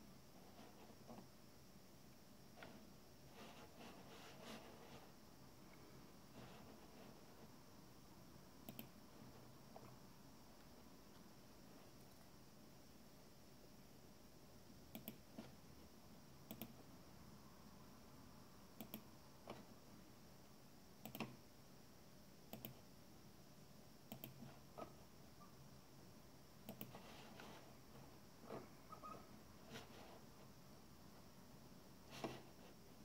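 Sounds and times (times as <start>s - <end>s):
faint steady hum: 0.0s - 33.0s
computer mouse clicks: 8.6s - 9.0s, 14.9s - 15.4s, 16.5s - 16.8s, 18.8s - 19.7s, 21.0s - 21.4s, 22.5s - 22.8s, 24.1s - 24.5s, 26.6s - 27.1s.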